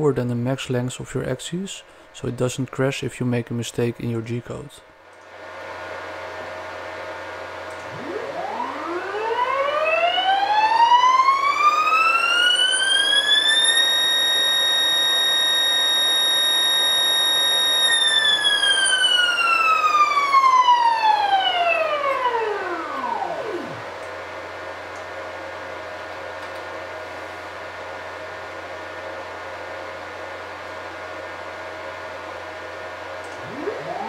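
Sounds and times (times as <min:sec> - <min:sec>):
faint steady hum: 0:00.0 - 0:34.0
stepper motor whining: 0:07.9 - 0:23.8, 0:33.3 - 0:34.0.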